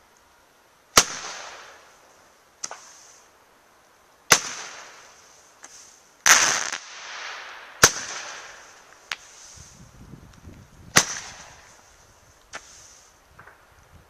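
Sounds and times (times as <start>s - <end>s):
firework bangs: 0.9s - 1.9s, 4.3s - 5.2s, 6.2s - 9.4s, 10.9s - 11.9s
firework hiss: 0.9s - 3.4s, 4.2s - 13.9s
firework pops: 2.6s - 3.0s, 4.3s - 9.3s, 10.3s - 11.8s, 13.3s - 13.7s.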